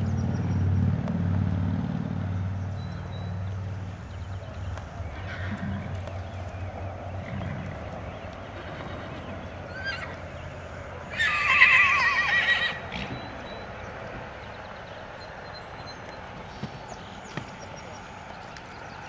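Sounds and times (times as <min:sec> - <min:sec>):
horse whinnying: 0:05.2 - 0:05.8, 0:08.6 - 0:10.2, 0:11.1 - 0:13.2.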